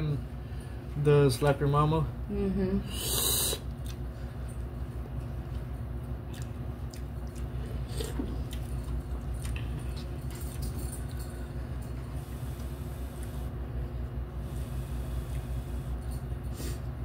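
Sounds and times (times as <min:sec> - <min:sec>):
slurping noodles: 0:03.0 - 0:03.6
chewing: 0:05.4 - 0:10.7.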